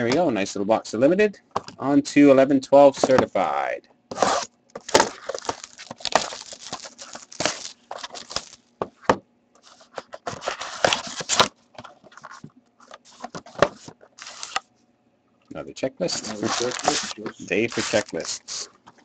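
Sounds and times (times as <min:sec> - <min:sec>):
cardboard tearing and rustling: 0:04.1 - 0:08.6, 0:09.6 - 0:11.5, 0:12.1 - 0:14.6, 0:16.1 - 0:18.6.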